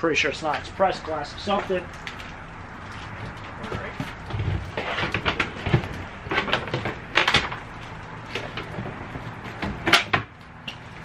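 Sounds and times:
household items knocking and scraping: 3.1 - 7.7.

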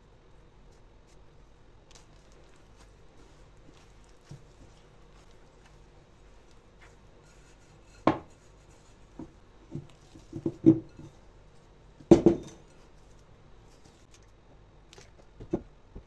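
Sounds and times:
dough thudding on countertop: 8.0 - 8.4, 12.1 - 12.6.

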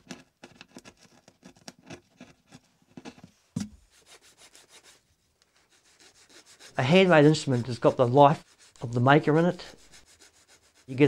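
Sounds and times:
chisel scraping wood: 0.0 - 3.2, 5.6 - 11.0
filing strokes: 3.8 - 11.0.

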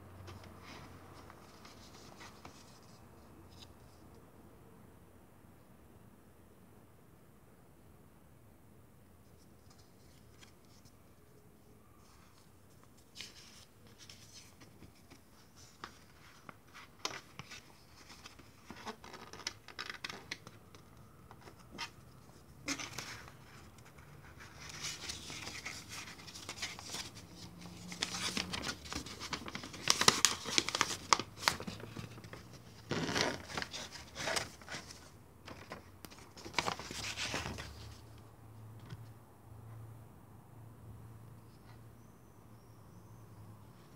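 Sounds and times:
paper rustling and crinkling: 0.3 - 3.7, 12.0 - 38.0.

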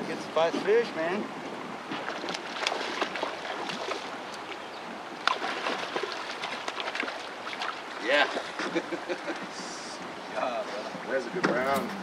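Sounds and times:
water lapping around boat: 0.0 - 12.0
sharp splashes and knocks: 1.8 - 8.7.

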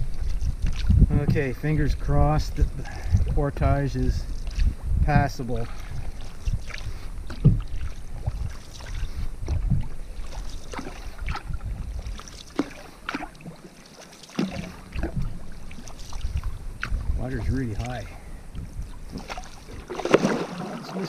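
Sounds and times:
paddle splashes in water: 5.6 - 21.0.

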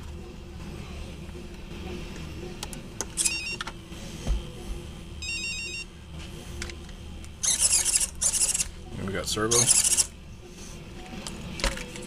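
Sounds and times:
servo whirring: 3.2 - 3.6, 7.4 - 8.7, 9.5 - 10.1.

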